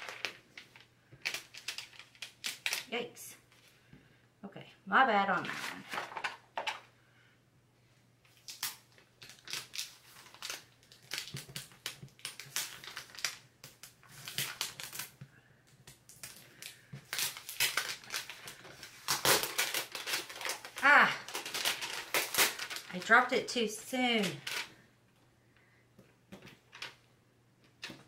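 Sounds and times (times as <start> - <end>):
plastic sheet crinkling: 0.0 - 2.9, 8.3 - 15.2, 15.9 - 24.8.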